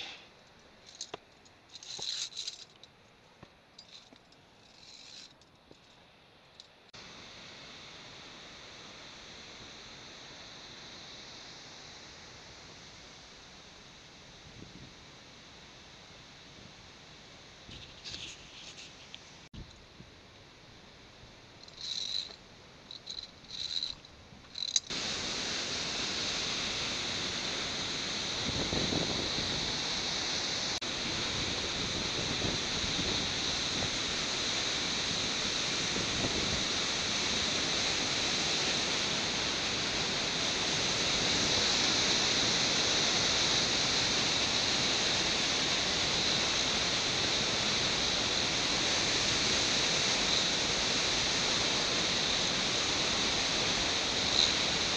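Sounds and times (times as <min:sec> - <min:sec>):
white water rushing: 0:24.8 - 0:54.9.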